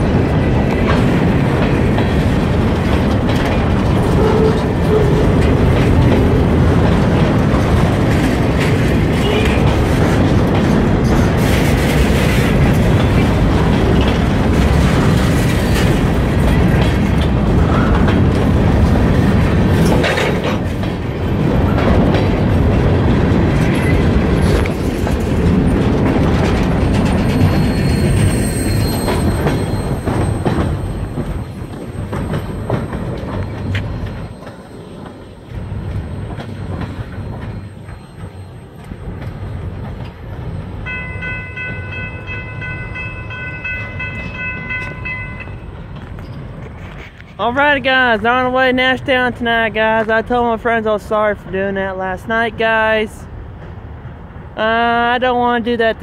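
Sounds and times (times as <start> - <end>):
freight train rumbling past: 0.0 - 56.0
high wheel squeal: 27.1 - 39.1.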